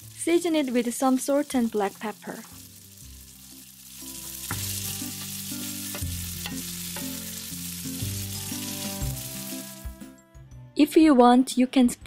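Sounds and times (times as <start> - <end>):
food sizzling in frying pan: 0.0 - 10.1
wooden spoon knocking pan: 4.4 - 7.2.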